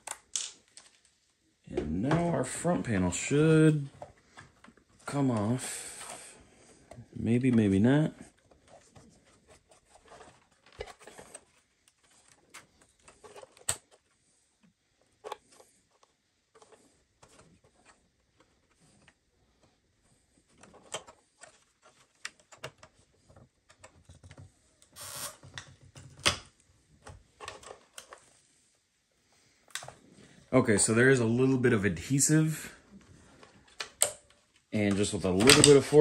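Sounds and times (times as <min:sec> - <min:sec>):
hands clicking and scraping plastic: 0:03.9 - 0:28.3, 0:29.6 - 0:30.0, 0:32.9 - 0:36.0.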